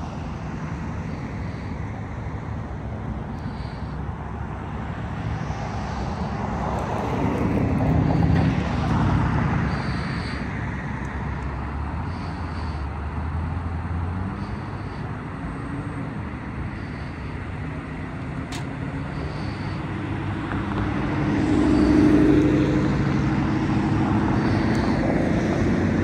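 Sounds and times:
low engine hum: 0:00.0 - 0:26.0
vehicle driving past: 0:04.8 - 0:15.0, 0:15.7 - 0:26.0.

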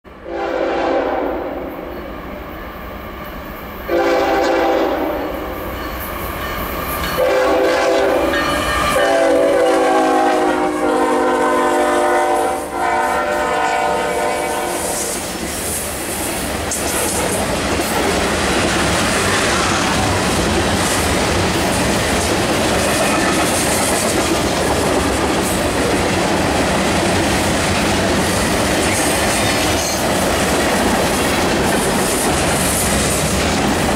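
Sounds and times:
locomotive air horn blasts: 0:00.2 - 0:01.8, 0:03.9 - 0:05.5, 0:07.2 - 0:15.3.

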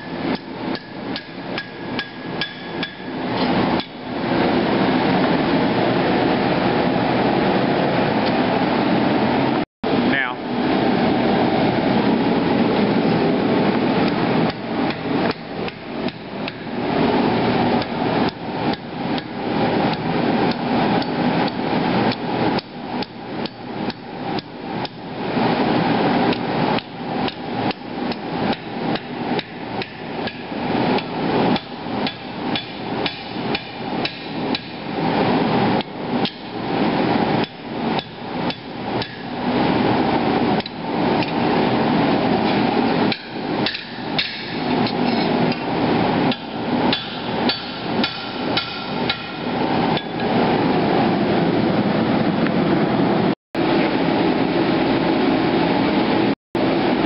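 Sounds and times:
hammer striking steel on anvil: 0:00.0 - 0:04.0, 0:26.3 - 0:34.8, 0:35.8 - 0:36.6, 0:37.4 - 0:39.3, 0:42.5 - 0:45.7, 0:46.3 - 0:50.3.

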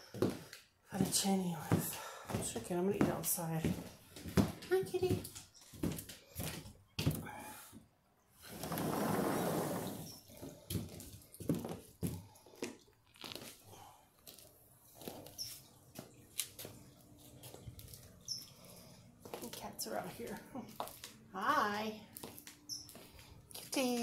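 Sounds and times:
footsteps on concrete: 0:00.0 - 0:07.2, 0:10.4 - 0:13.6, 0:19.2 - 0:21.2, 0:22.1 - 0:24.0
sliding glass door rolling open: 0:08.4 - 0:10.2.

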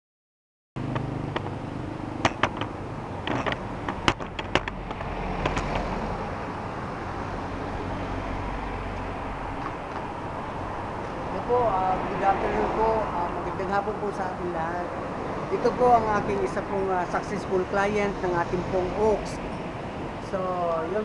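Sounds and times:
sharp clicks and knocks: 0:00.8 - 0:01.6, 0:02.2 - 0:06.1, 0:09.0 - 0:10.1
vehicles passing: 0:00.8 - 0:21.0.

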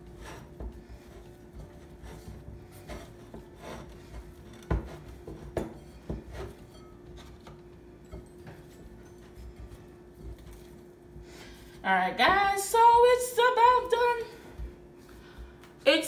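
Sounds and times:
dough rubbing and scraping in bowl: 0:00.0 - 0:11.9.

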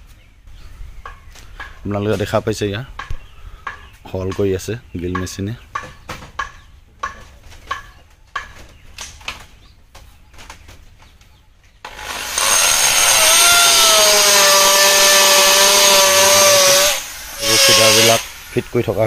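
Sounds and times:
electric drill whining: 0:11.9 - 0:19.0.

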